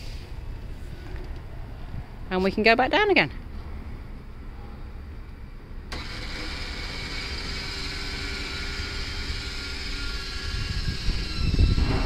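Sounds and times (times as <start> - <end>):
lift motor hum: 5.9 - 12.0.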